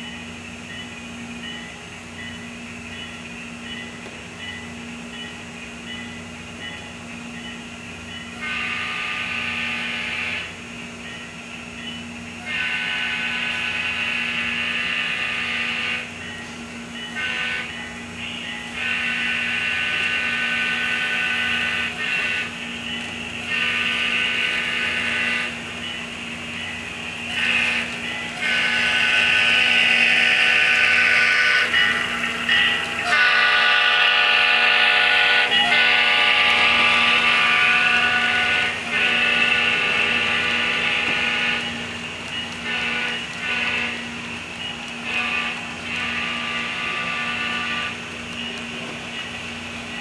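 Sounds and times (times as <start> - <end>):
model train motor whine: 8.4 - 10.6, 11.8 - 16.4, 17.0 - 50.0.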